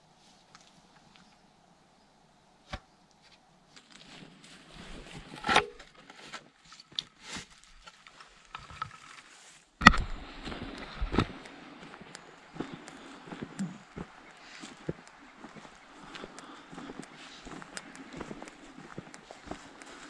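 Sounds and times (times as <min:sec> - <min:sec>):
rustling: 0:02.7 - 0:11.4.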